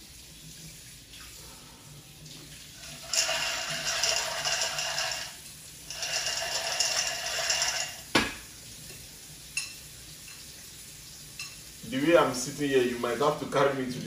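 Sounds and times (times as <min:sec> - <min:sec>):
rushing hissing from jar: 0:02.8 - 0:08.1.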